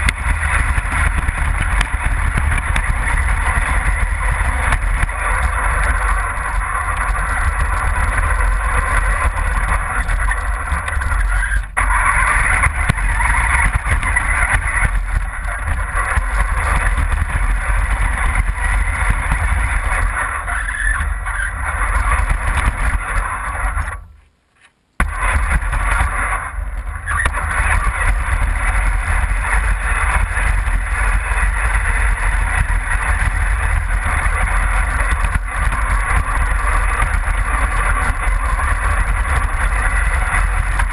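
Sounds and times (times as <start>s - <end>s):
rc car driving over snow: 0.0s - 24.2s, 25.0s - 40.9s.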